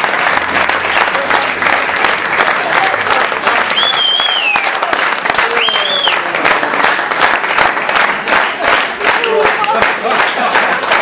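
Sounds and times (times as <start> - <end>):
audience applauding: 0.0 - 11.0
shrill whistles: 3.7 - 4.8, 5.6 - 6.2.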